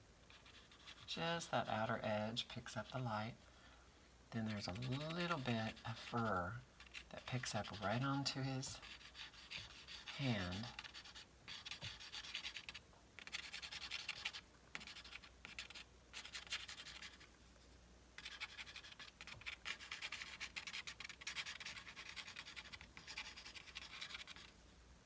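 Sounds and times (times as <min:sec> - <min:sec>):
pencil scratching on paper: 0:00.3 - 0:01.1, 0:04.4 - 0:17.3, 0:18.2 - 0:24.5.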